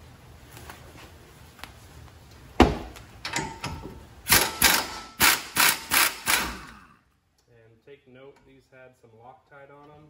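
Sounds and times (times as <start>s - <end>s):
pneumatic impact wrench hammering: 3.3s - 7.0s.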